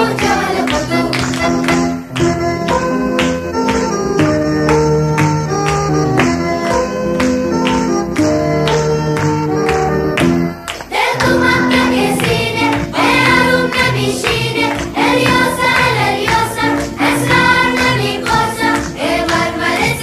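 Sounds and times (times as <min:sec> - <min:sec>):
voices singing a song: 0:00.0 - 0:01.6, 0:10.9 - 0:20.0.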